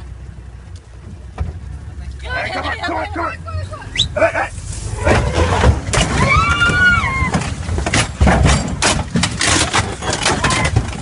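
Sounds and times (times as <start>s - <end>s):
knocking and rattling in vehicle: 1.0s - 1.8s, 5.0s - 11.0s
low rumble: 3.2s - 9.4s.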